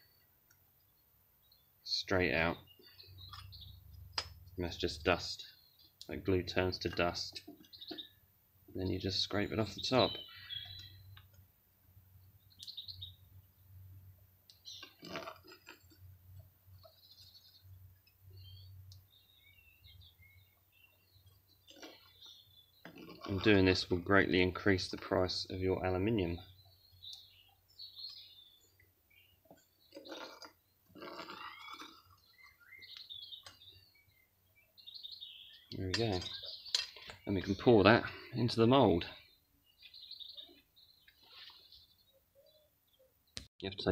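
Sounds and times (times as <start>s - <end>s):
birds chirping: 0.0s - 43.9s
faint bird chirps: 7.4s - 11.3s, 25.4s - 43.4s.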